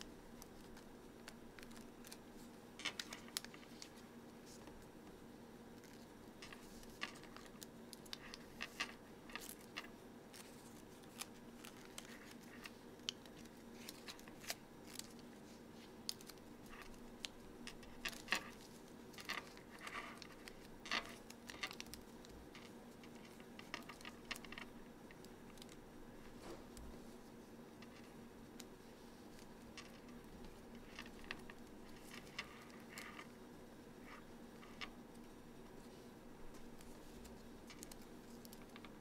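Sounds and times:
paper being folded and creased: 5.8s - 24.8s.

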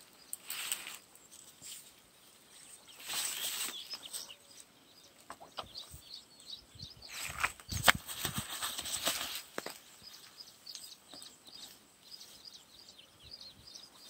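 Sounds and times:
grass rustling: 0.0s - 4.7s, 7.1s - 12.6s
faint bird chirps: 0.0s - 8.5s.

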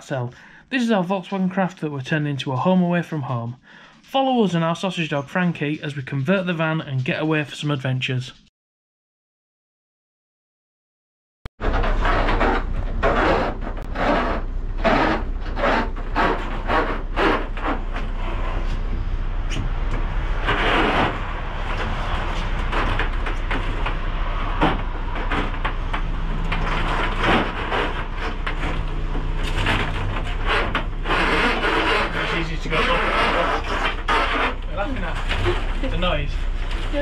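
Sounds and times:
plastic conduit scraping metal: 11.6s - 37.0s.

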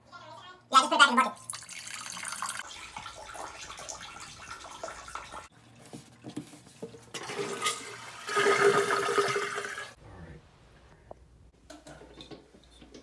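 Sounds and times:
toilet flushing: 1.4s - 5.9s, 7.1s - 10.0s.

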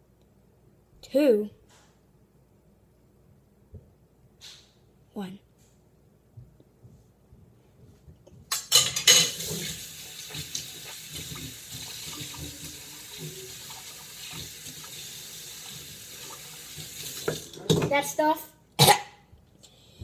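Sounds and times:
water running into sink: 8.8s - 18.0s.

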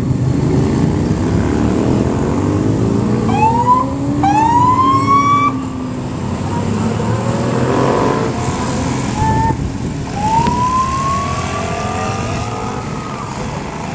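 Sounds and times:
passing motorcycles and vehicles: 0.0s - 13.9s
police siren: 3.2s - 5.8s, 9.1s - 13.9s.

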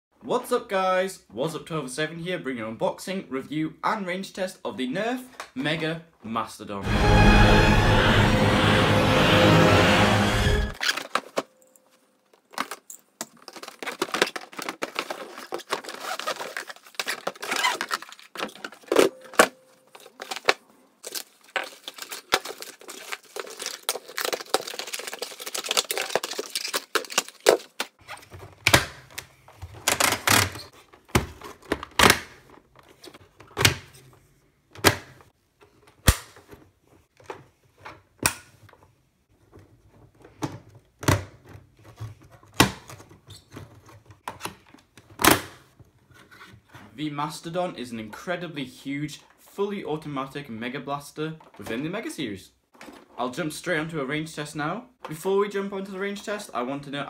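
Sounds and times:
cardboard rustling and scraping: 12.6s - 19.0s.

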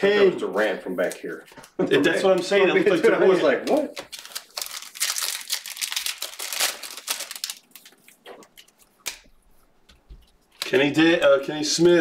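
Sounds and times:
wrappers crinkling and tearing: 3.5s - 9.5s, 10.2s - 11.0s.

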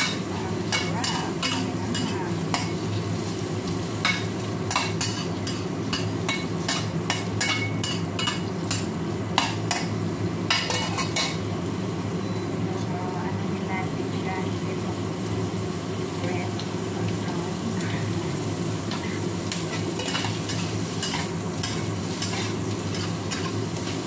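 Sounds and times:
shrimp frying in a pan: 0.0s - 24.0s
steady low hum: 0.0s - 24.0s
spatula scraping a pan: 18.9s - 24.0s.

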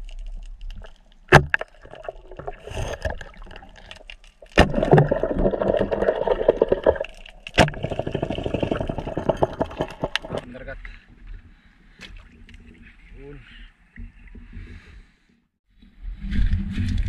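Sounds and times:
water crackling and bubbling: 0.0s - 10.5s.

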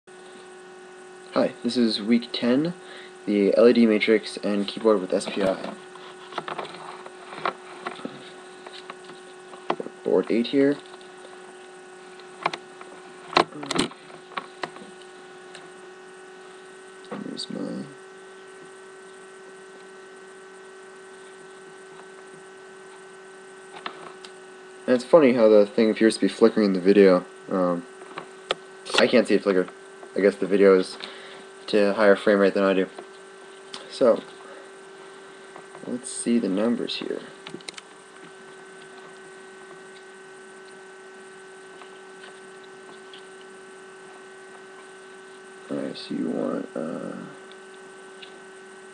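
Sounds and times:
electrical hum: 0.1s - 48.9s
faint high whine: 0.1s - 48.9s
even hiss: 45.7s - 47.4s.

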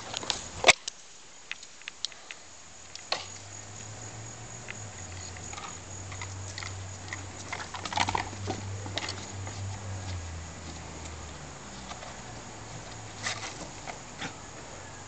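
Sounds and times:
puppy paws pattering and clicking: 4.6s - 14.4s.

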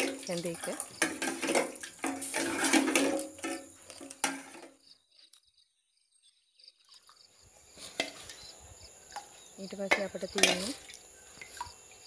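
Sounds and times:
ladle scraping porridge pot: 0.0s - 4.7s
crickets chirping: 0.0s - 12.0s.

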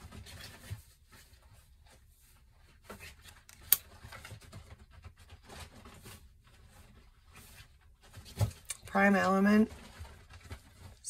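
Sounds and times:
cards rustling and scraping: 2.0s - 9.6s.

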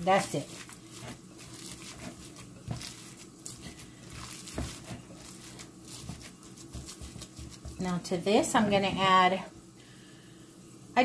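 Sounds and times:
hands squishing raw meat: 0.1s - 7.8s.

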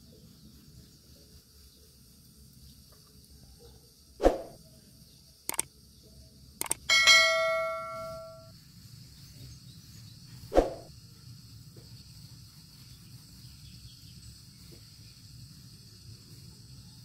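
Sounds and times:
mouse clicks: 6.6s - 6.8s
notification bell ding: 6.9s - 8.5s.

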